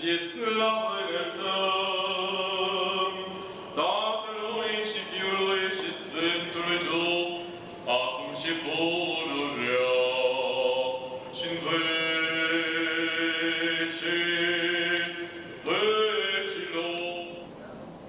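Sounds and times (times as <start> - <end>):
person chanting liturgical chant: 0.0 - 17.5.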